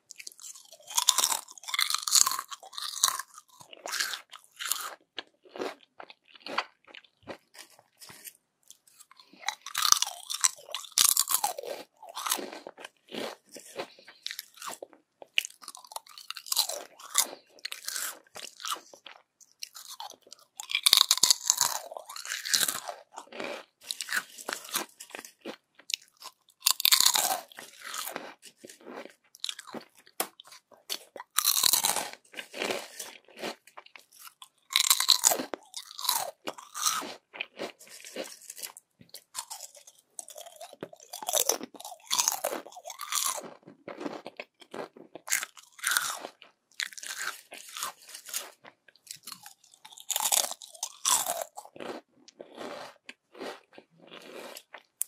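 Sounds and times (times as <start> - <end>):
crunching of chips being chewed: 0.0 - 55.0.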